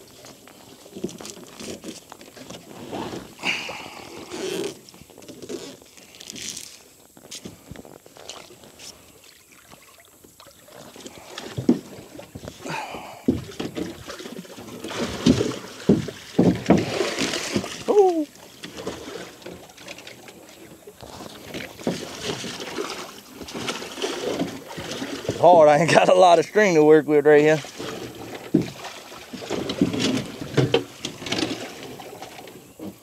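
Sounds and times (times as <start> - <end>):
water splashing: 7.5 - 33.0
knocks against boat: 15.0 - 17.9.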